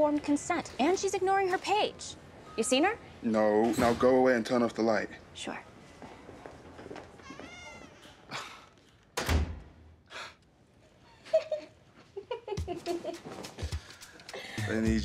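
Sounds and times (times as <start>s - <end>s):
door shutting with low thud: 9.2s - 9.7s.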